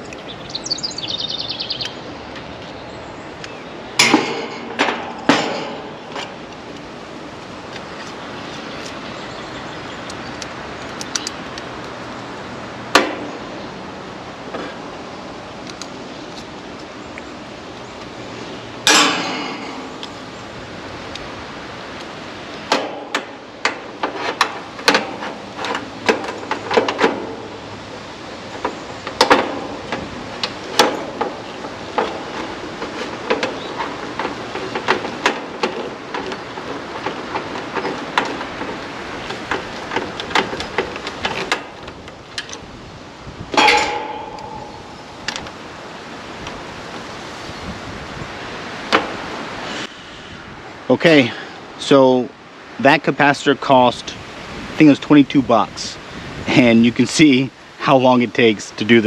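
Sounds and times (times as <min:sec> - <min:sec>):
ringing metal knock: 0:43.5 - 0:45.5.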